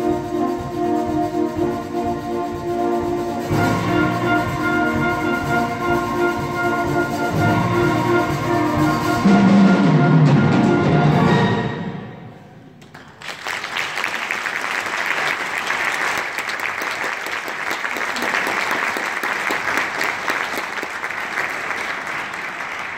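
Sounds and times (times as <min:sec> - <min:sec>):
audience applause: 0:12.8 - 0:22.9.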